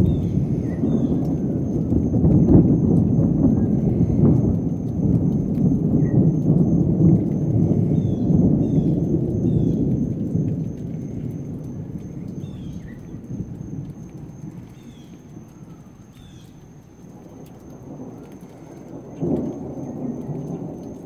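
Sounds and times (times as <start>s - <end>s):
rolling thunder: 0.0s - 21.0s.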